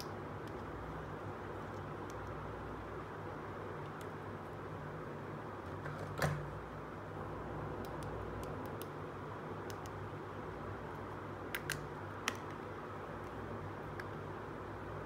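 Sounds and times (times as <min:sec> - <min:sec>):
low hum and hiss: 0:00.0 - 0:15.0.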